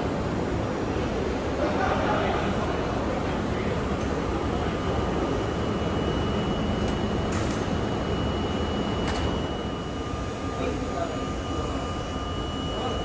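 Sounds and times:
subway train rumble: 0.0s - 13.0s
faint high steady tone: 4.4s - 13.0s.

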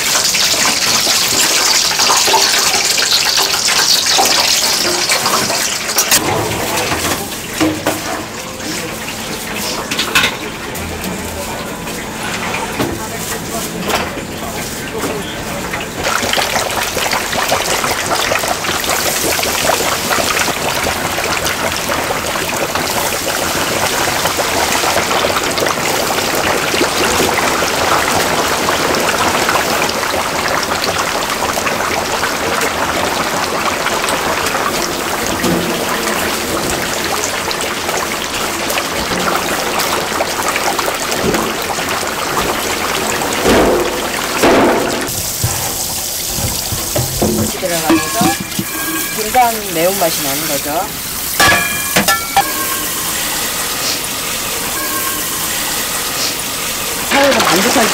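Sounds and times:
tap water splashing into sink: 43.4s - 49.5s.

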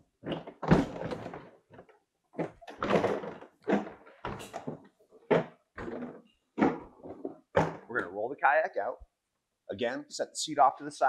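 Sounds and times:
plastic sheet flexing and clattering: 0.1s - 7.9s.

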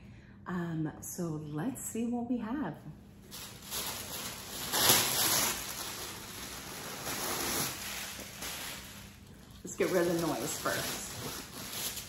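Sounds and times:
wrapping paper crinkling: 3.2s - 12.0s.

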